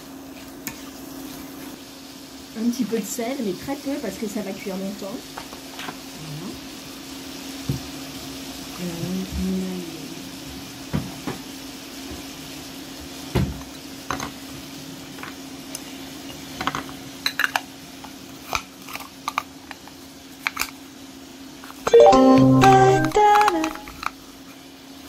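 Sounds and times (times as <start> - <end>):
short jingle of stepped notes: 21.9 - 23.2.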